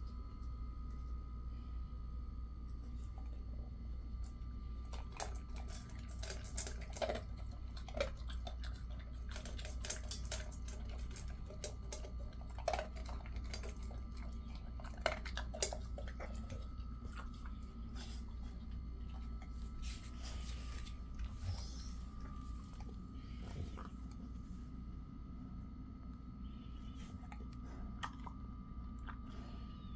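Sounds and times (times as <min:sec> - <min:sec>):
dog crunching kibble: 0:02.9 - 0:24.4, 0:27.2 - 0:29.4
kibble clicking on metal bowl: 0:04.9 - 0:17.4.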